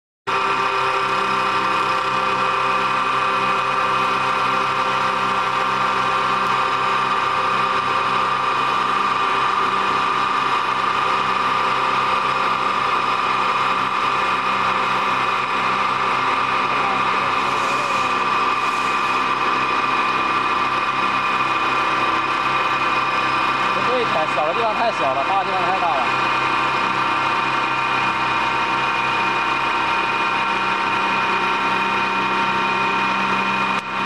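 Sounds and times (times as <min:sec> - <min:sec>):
wood lathe machine whine: 0:00.3 - 0:34.0.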